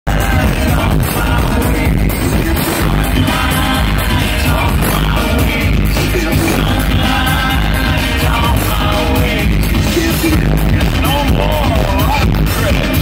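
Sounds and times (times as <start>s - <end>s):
electronic dance music: 0.1s - 13.0s
heavy bass beat: 0.1s - 13.0s
man singing into a microphone: 0.1s - 13.0s
synthesizers: 0.1s - 13.0s.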